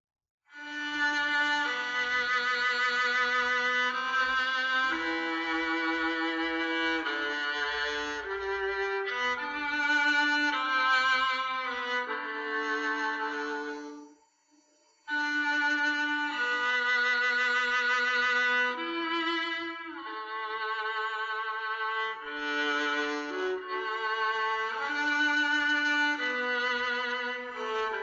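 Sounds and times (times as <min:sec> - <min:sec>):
viola playing slow melody: 0:00.5 - 0:14.2, 0:15.1 - 0:28.0.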